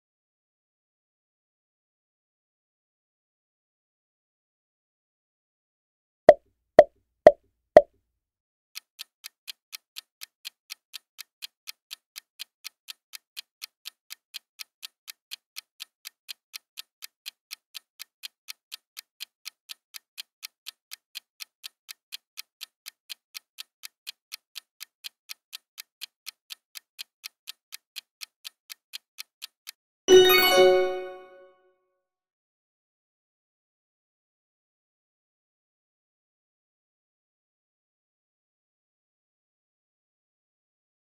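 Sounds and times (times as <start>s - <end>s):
clock ticking: 8.8s - 31.2s.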